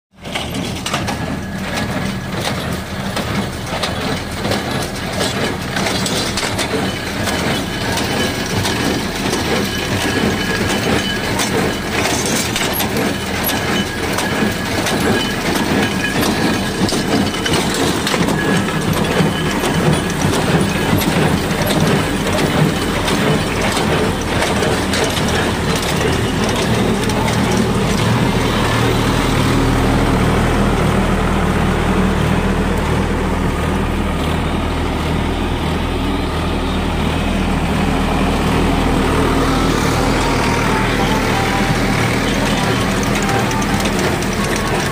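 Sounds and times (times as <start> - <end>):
tractor diesel engine running: 0.1 - 44.9
baler mechanism clattering: 0.2 - 29.5.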